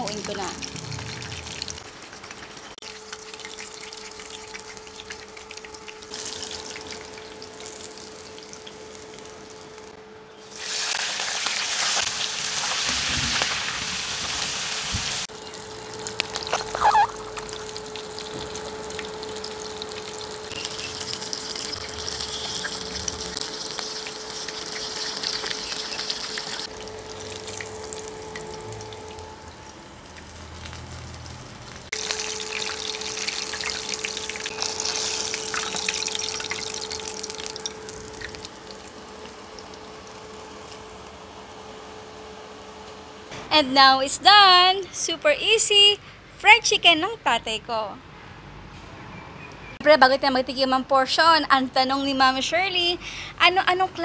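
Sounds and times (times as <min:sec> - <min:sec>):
chicken deep-frying in oil: 0:00.0 - 0:43.3
constant hum: 0:00.0 - 0:54.0.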